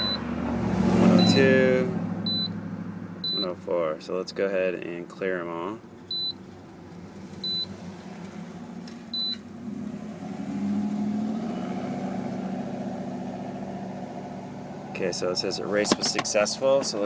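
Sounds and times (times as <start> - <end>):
short high beeps: 0.0 - 0.2, 1.2 - 1.5, 2.3 - 2.5, 3.3 - 3.5, 6.1 - 6.4.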